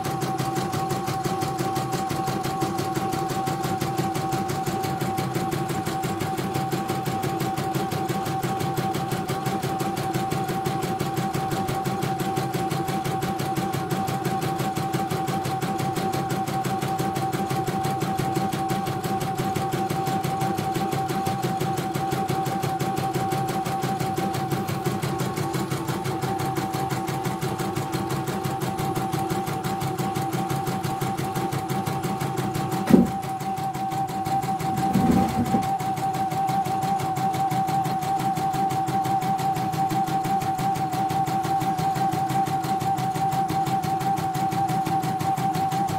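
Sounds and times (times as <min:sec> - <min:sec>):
embroidery machine needle stitching: 0:00.0 - 0:36.6
motor whine: 0:34.6 - 0:35.8.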